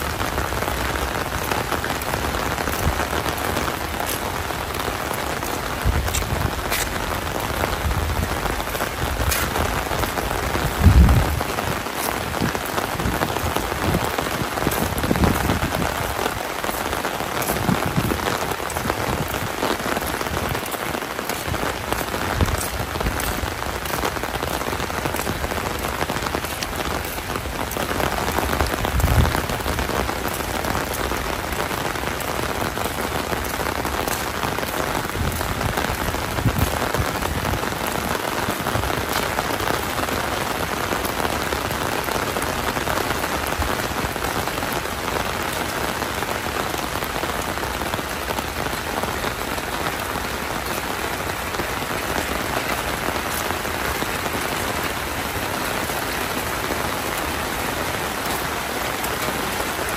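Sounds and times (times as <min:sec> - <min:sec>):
heavy rain falling: 0:00.0 - 0:59.9
dull low bumps: 0:05.8 - 0:14.1.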